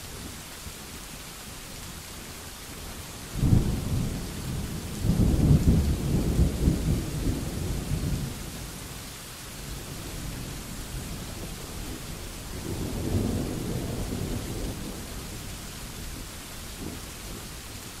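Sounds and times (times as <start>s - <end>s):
steady rain falling: 0.0s - 18.0s
rolling thunder: 3.4s - 8.6s, 9.7s - 15.5s.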